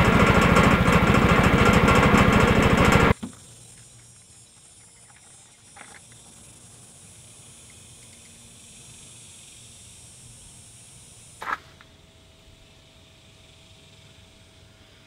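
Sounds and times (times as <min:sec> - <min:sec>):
high hiss: 0:03.1 - 0:15.0.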